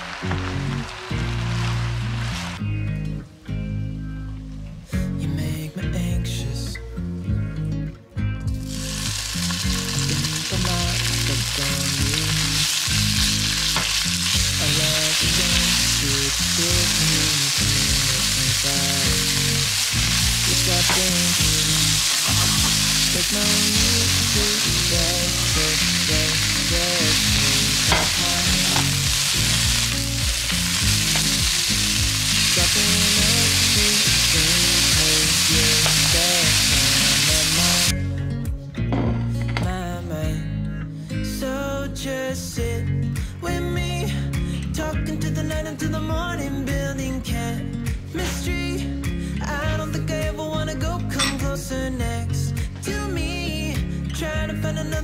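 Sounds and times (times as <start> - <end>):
food sizzling in a pan: 0.0 - 2.6, 8.6 - 37.9
background music: 0.0 - 55.0.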